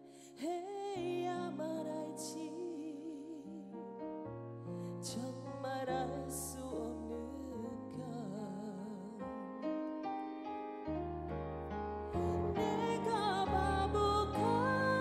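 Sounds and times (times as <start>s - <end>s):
soft piano backing music: 0.0s - 15.0s
woman singing ballad: 0.1s - 4.0s, 4.7s - 9.7s, 12.2s - 15.0s.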